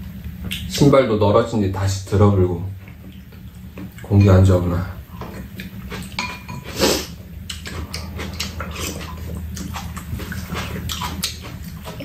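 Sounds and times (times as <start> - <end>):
chewing and lip-smacking: 0.4 - 0.8, 2.8 - 4.1, 5.2 - 6.7, 7.4 - 12.0
people slurping soup: 5.3 - 12.0.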